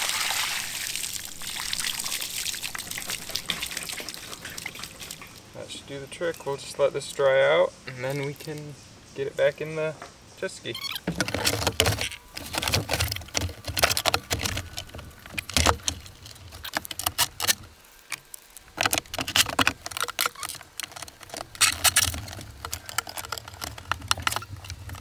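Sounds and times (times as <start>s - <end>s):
clicks and rattles of small parts: 10.8s - 25.0s.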